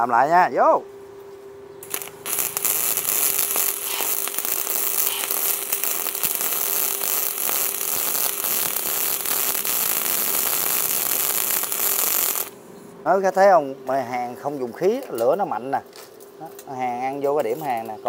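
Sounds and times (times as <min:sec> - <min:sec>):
welding arcs crackling: 0:01.8 - 0:12.6.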